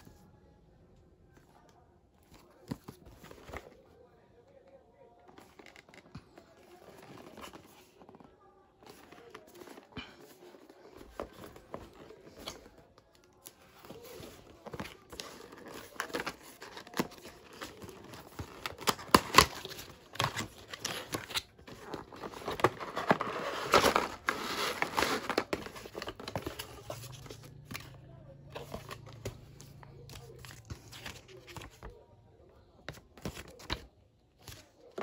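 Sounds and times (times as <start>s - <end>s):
cardboard box being opened: 13.8s - 27.9s.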